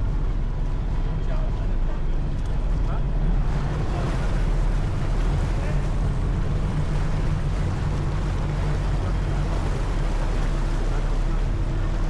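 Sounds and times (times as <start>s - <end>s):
ferry engine hum: 0.0s - 12.0s
water rushing along hull: 0.0s - 12.0s.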